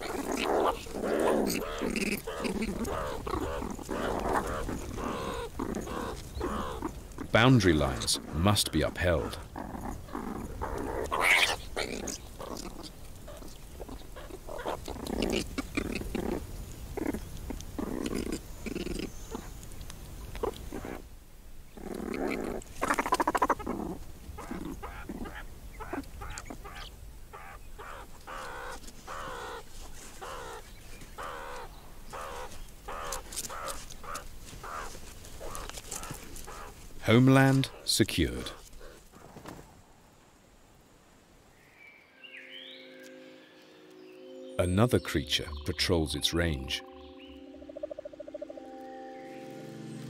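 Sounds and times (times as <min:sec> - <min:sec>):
meerkats chattering and growling: 0:00.0 - 0:21.1, 0:21.7 - 0:39.2, 0:44.6 - 0:48.6.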